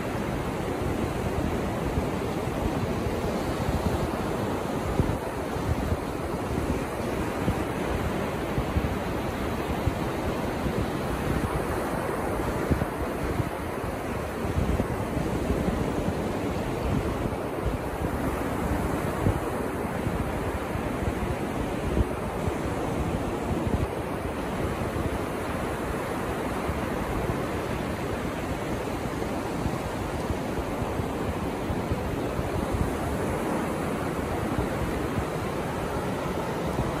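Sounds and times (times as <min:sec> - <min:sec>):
ocean surf breaking on beach: 0:00.0 - 0:37.0
wind buffeting microphone: 0:00.3 - 0:26.0.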